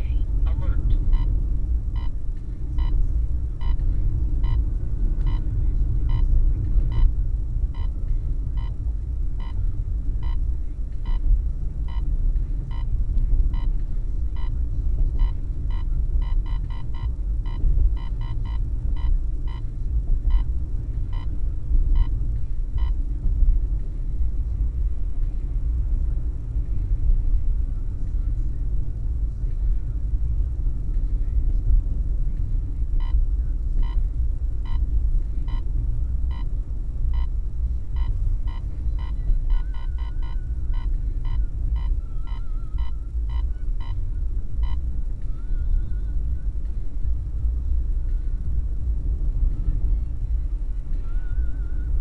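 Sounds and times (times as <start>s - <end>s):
road rumble inside car: 0.0s - 52.0s
radar detector beeping: 1.0s - 3.0s, 3.6s - 20.5s, 21.1s - 22.2s, 22.8s - 23.0s, 33.0s - 33.2s, 33.8s - 34.0s, 34.6s - 35.7s, 36.3s - 37.4s, 38.0s - 44.9s.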